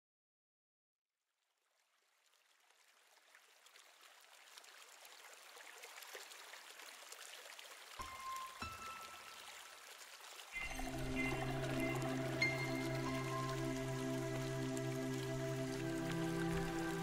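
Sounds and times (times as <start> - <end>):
intro music with held tones: 10.6 - 17.0.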